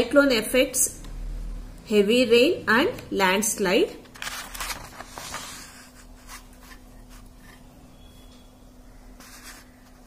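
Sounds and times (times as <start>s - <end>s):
paper rustling: 4.1s - 7.6s, 9.2s - 10.0s.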